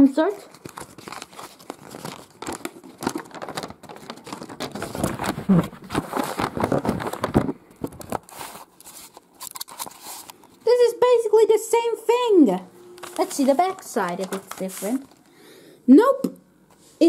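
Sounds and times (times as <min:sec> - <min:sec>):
paper booklet rustling: 0:00.2 - 0:10.7, 0:12.9 - 0:15.4.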